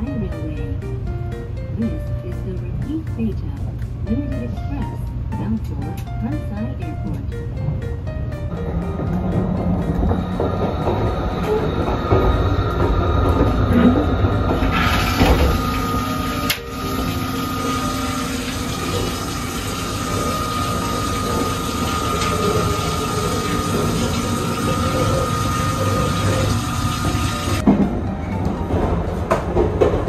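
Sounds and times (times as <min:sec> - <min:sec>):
train running rumble: 0:00.0 - 0:30.0
high whine: 0:05.4 - 0:29.1.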